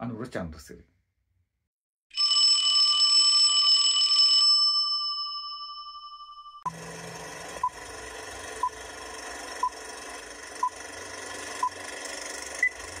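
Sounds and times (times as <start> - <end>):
film projector crackling and whirring: 6.7 - 13.0.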